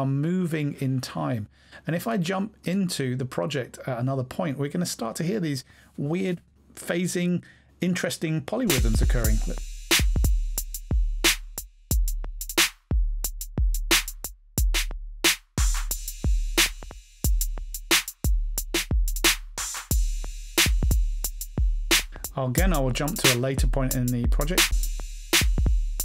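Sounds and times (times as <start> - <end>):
phasing drum loops: 8.7 - 26.0.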